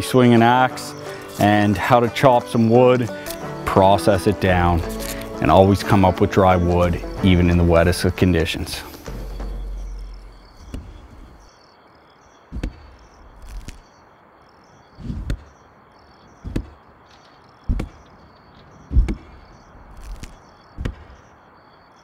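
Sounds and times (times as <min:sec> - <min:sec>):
high chirping: 0:00.0 - 0:22.0
axe chopping wood: 0:10.6 - 0:11.3, 0:12.5 - 0:13.8, 0:15.0 - 0:15.5, 0:16.4 - 0:16.8, 0:17.7 - 0:18.0, 0:18.9 - 0:19.4, 0:20.0 - 0:21.2.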